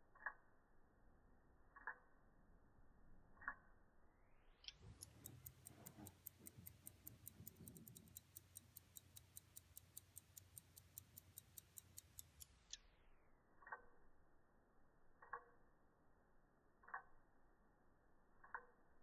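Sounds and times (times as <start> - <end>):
pocket watch ticking: 0.1 - 0.4, 1.8 - 2.1, 3.4 - 3.6, 4.6 - 12.9, 13.6 - 14.0, 15.2 - 15.6, 16.8 - 17.2, 18.4 - 18.8.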